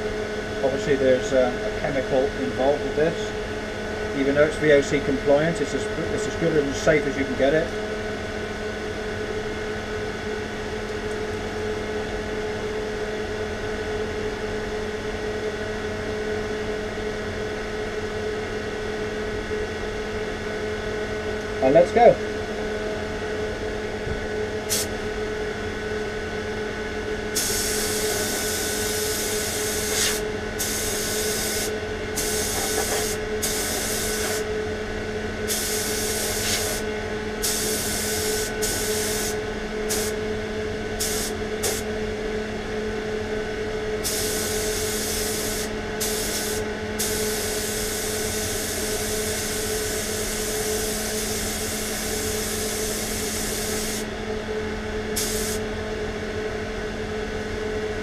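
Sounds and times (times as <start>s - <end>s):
steady hum: 0.0s - 58.0s
spray gun hissing: 27.4s - 34.4s, 35.5s - 36.8s, 37.4s - 40.1s, 41.0s - 41.8s, 44.0s - 54.0s, 55.2s - 55.6s.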